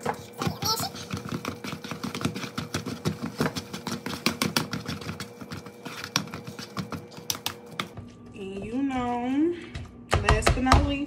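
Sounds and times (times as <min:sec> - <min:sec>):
potato masher knocking bowl: 0:00.0 - 0:08.0.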